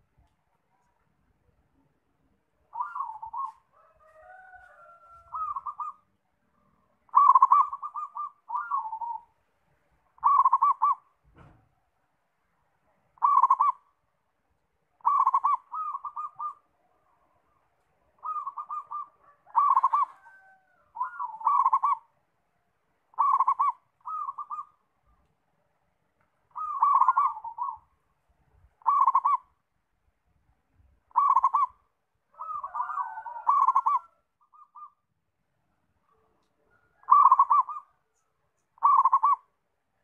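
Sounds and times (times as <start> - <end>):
dove cooing: 2.7 - 6.1, 7.1 - 9.4, 10.2 - 11.6, 13.2 - 13.9, 15.0 - 16.7, 17.5 - 22.2, 23.1 - 25.2, 26.5 - 27.9, 28.8 - 29.6, 31.1 - 35.0, 36.1 - 39.6.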